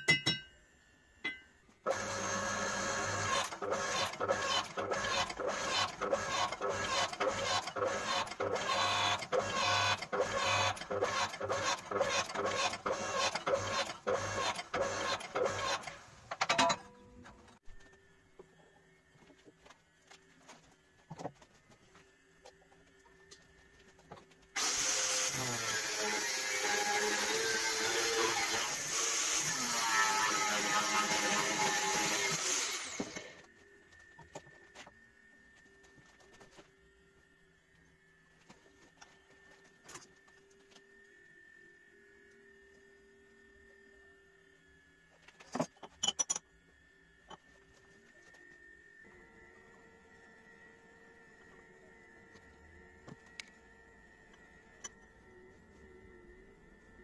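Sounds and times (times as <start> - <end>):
hydraulic press pump pulsing: 1.9 - 16.8
angle grinder cutting steel: 24.6 - 33.4.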